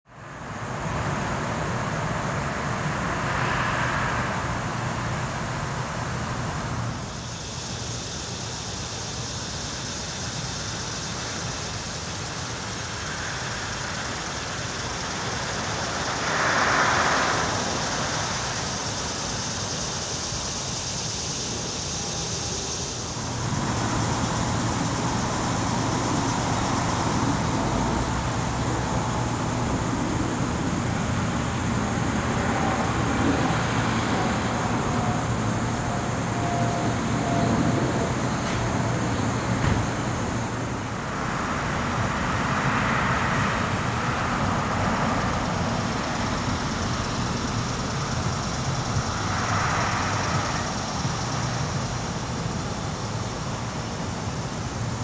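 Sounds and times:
road traffic noise: 0.0s - 55.0s
vehicles passing by: 0.1s - 55.0s.

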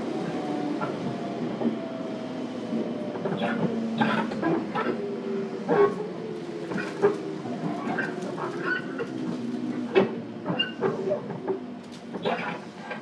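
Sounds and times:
electric train hum: 0.0s - 13.0s.

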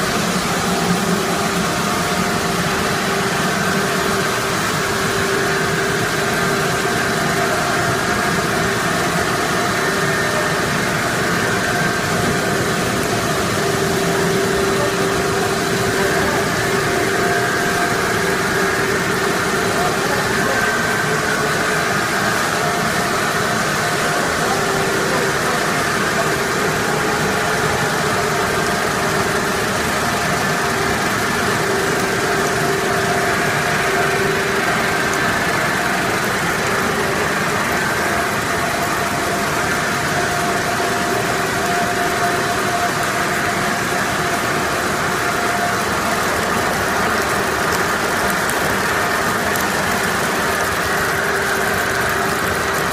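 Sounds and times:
machinery humming: 0.0s - 52.9s
steady machine tones: 0.0s - 52.9s.

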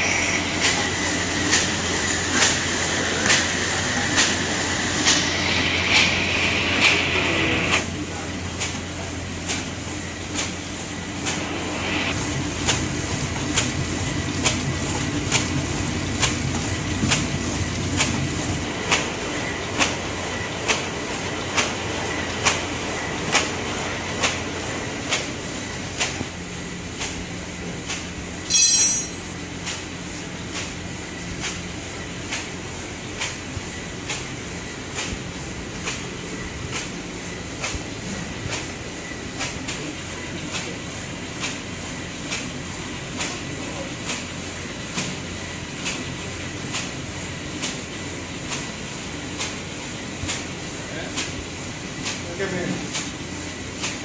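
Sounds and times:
high-pitched squeal: 0.0s - 7.7s
machine whirring clatter: 0.0s - 54.0s.

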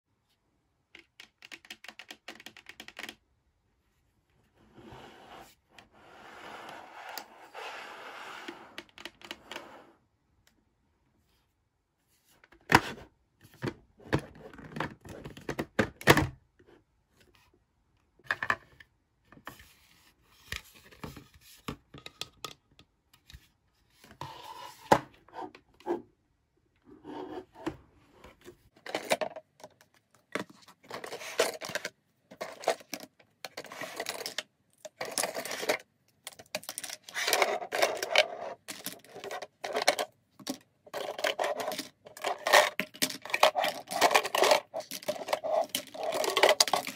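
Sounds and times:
plastic toy pieces clicking and rattling: 28.8s - 46.9s.

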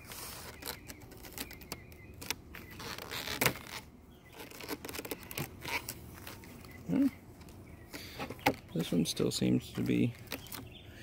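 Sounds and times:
plastic frames clicking and knocking: 9.6s - 10.8s.

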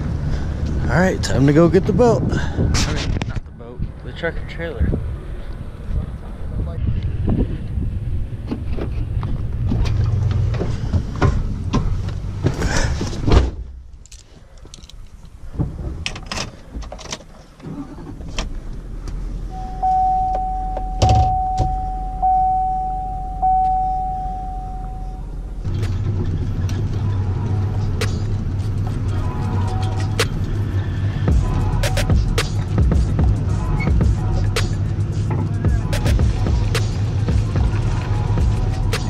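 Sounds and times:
wind on the microphone: 1.6s - 4.0s, 4.7s - 10.2s
truck engine humming: 7.7s - 39.0s
keys jangling: 14.0s - 15.1s
dashboard warning chime: 19.5s - 25.4s.

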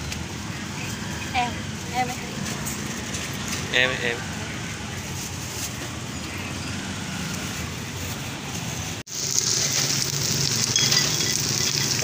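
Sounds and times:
market background rumble: 0.0s - 12.0s
greens sizzling in hot oil: 9.1s - 12.0s.

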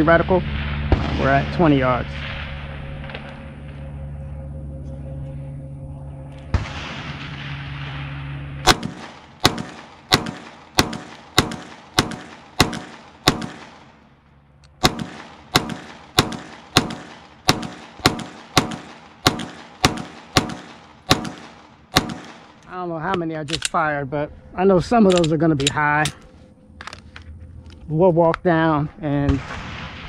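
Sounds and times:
pistol shots with echo: 8.6s - 14.0s, 14.8s - 22.7s.

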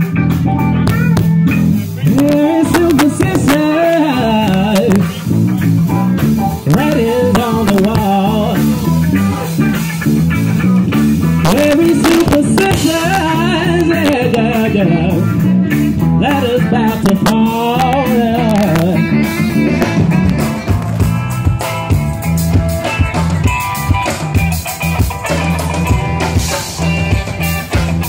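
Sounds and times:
live band playing: 0.0s - 28.0s
saxophone melody: 26.0s - 28.0s.

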